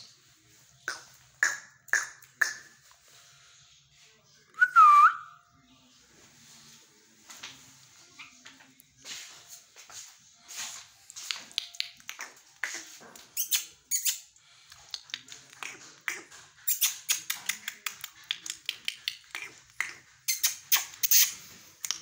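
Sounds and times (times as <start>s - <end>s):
parakeet squeaks and chirps: 13.3s - 14.3s, 16.1s - 17.5s, 20.2s - 21.4s.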